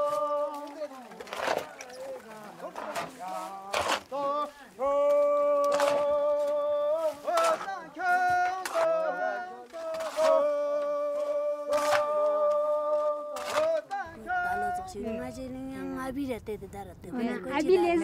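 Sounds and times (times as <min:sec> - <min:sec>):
person singing unaccompanied: 0:00.0 - 0:00.9, 0:03.1 - 0:16.2.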